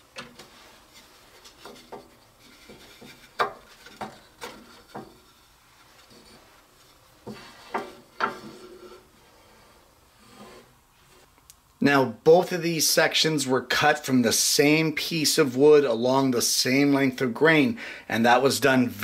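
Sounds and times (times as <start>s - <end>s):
wood scraping: 0.1s - 11.4s
wooden knocks: 1.6s - 5.2s.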